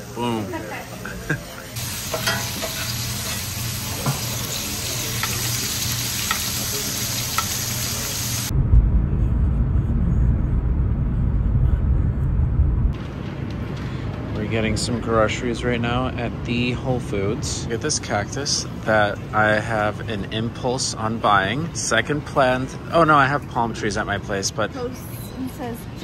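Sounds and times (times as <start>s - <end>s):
steak sizzling in a frying pan: 1.8s - 8.5s.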